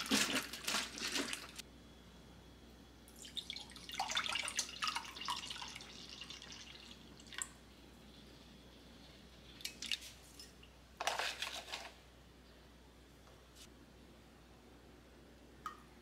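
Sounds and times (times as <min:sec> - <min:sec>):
water dripping: 0:03.1 - 0:07.6, 0:15.6 - 0:16.0.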